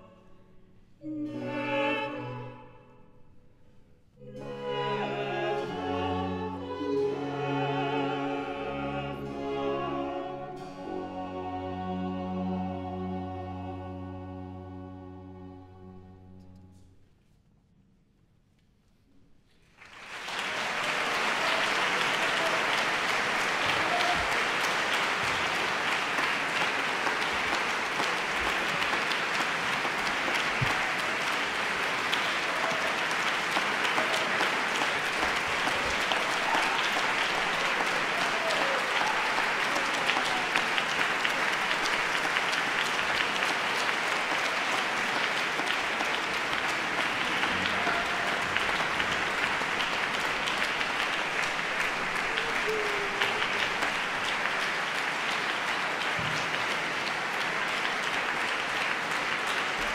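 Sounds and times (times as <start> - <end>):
audience applauding: 19.7 - 59.9.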